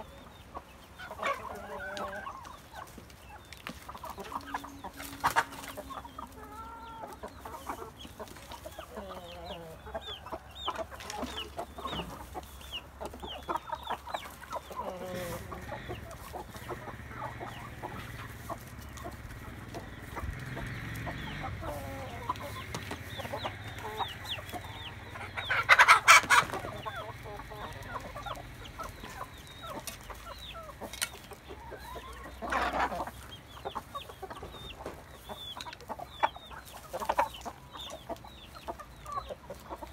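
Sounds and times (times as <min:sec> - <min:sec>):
chickens clucking and cheeping: 0:00.0 - 0:39.9
loud chicken squawk: 0:23.4 - 0:28.1.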